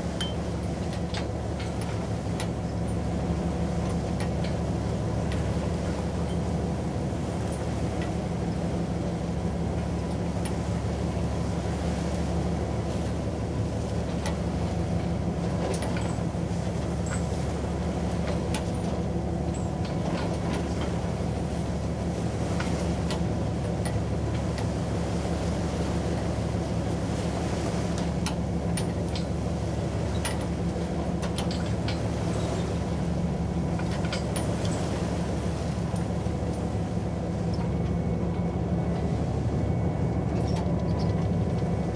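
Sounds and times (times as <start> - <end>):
ship engines droning: 0.0 - 41.9.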